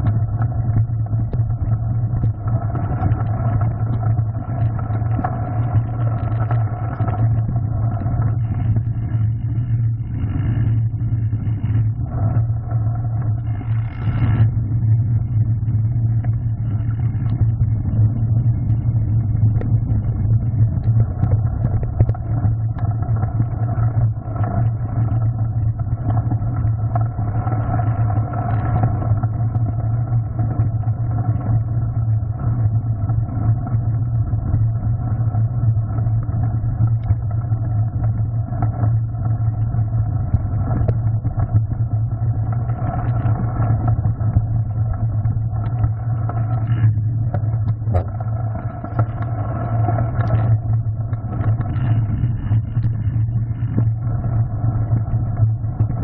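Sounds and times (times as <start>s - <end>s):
bike tyre rumble on gravel: 16.6s - 56.0s.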